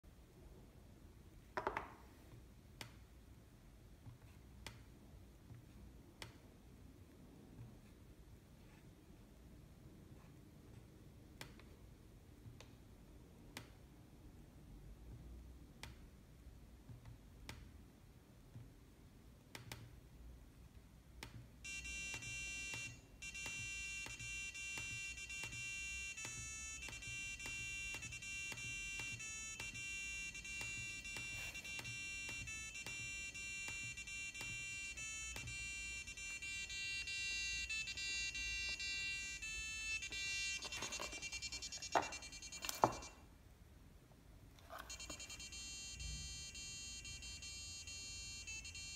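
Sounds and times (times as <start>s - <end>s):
electronic alarm beeping melody: 21.6s - 43.2s, 44.7s - 48.9s.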